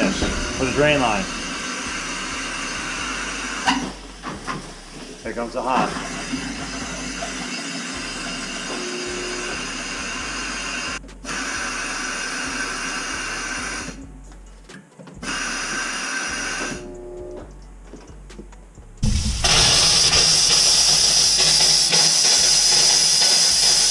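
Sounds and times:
compressed air hissing: 0.0s - 14.0s, 19.0s - 23.9s.

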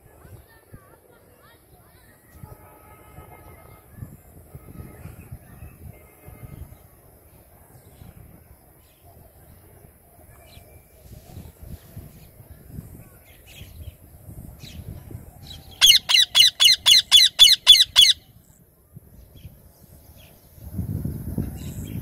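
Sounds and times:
parakeet screeching: 15.8s - 18.2s.

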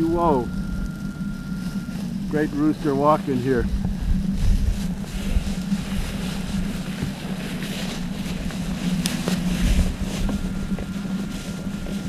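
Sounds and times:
dry grass rustling: 0.0s - 12.0s
steady low hum: 0.0s - 12.0s
wind rumbling on microphone: 3.2s - 12.0s.

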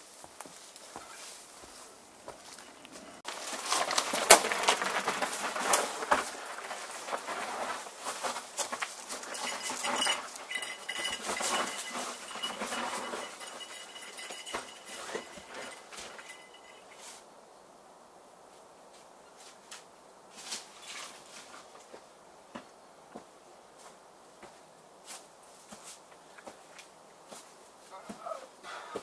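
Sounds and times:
footsteps crunching on dry leaves: 0.0s - 16.8s
dog's paws pattering on dirt: 0.0s - 17.2s
bike clicking: 2.6s - 16.8s
thin high tone: 9.2s - 17.2s.

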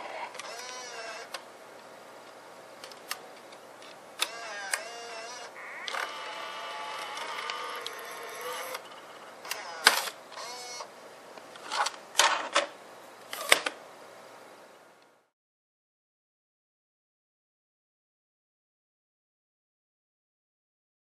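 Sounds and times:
cassette deck motor whirring: 0.0s - 1.4s, 4.2s - 10.9s.

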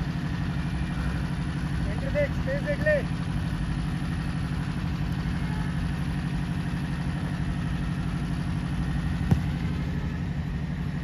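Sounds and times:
low pulsing drone: 3.0s - 11.0s.

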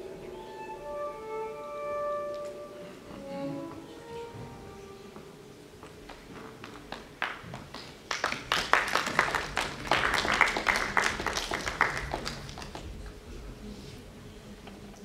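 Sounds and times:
audience clapping: 6.0s - 13.2s.

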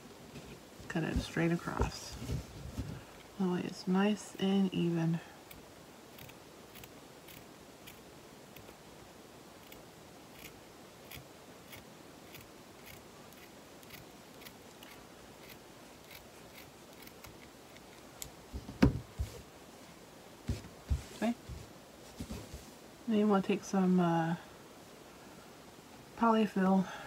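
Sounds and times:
fabric thumps on table: 18.6s - 19.4s.

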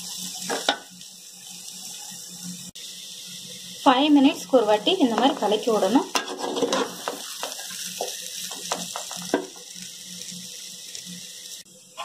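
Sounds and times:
vegetable pieces sizzling in oil: 0.0s - 12.0s
metal spatula scraping pan: 6.1s - 7.7s.

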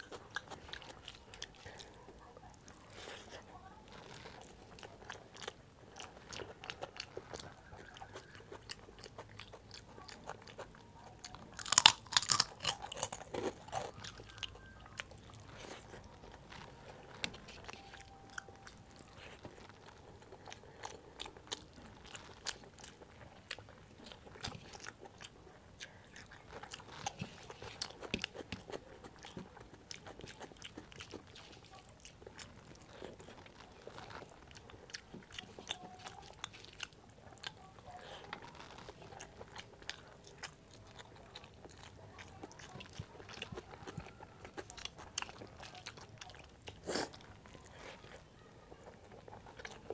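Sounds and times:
chewing: 0.0s - 49.9s
fingers squishing food: 0.0s - 49.9s
crunchy bite: 11.6s - 14.5s.

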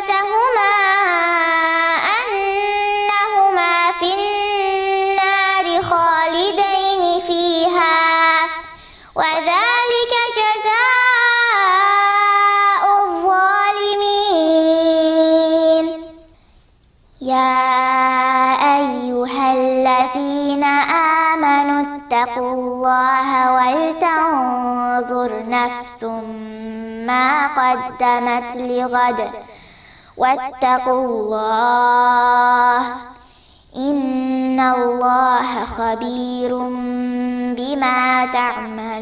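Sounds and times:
girl reciting melodically: 0.0s - 39.0s.

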